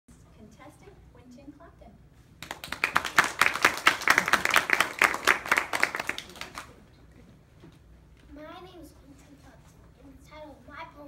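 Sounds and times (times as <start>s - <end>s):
audience applause: 2.4s - 6.7s.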